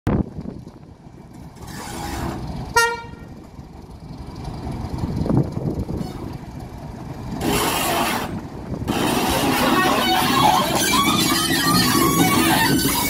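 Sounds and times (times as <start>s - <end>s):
diesel locomotive engine rumbling: 0.1s - 13.0s
train horn toot: 2.7s - 3.3s.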